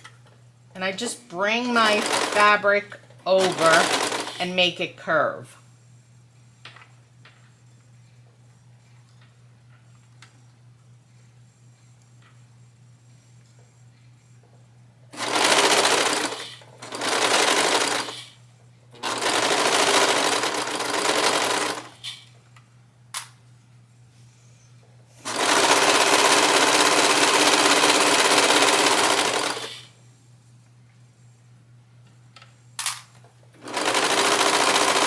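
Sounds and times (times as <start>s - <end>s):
serger sewing machine running: 1.6s - 4.5s, 15.1s - 18.3s, 19.0s - 22.0s, 25.2s - 29.9s, 33.6s - 35.0s.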